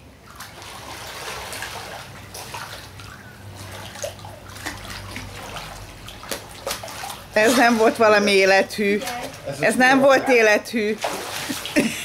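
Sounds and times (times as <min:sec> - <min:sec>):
pool water splashing and sloshing: 0:00.0 - 0:12.0.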